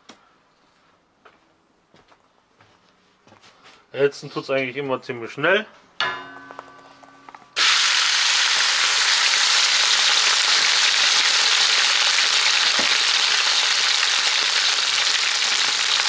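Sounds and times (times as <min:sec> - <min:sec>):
meat sizzling in oil: 0:07.6 - 0:16.0.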